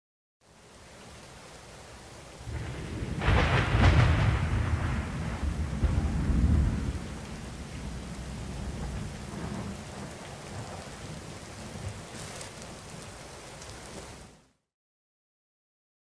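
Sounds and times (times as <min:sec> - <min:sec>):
steady rain: 0:00.4 - 0:14.7
thunder rumbling: 0:02.4 - 0:14.3.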